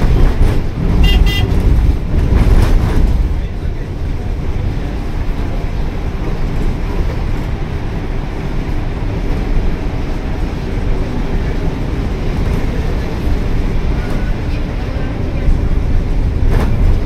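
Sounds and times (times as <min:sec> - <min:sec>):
bus engine and road rumble: 0:00.0 - 0:17.0.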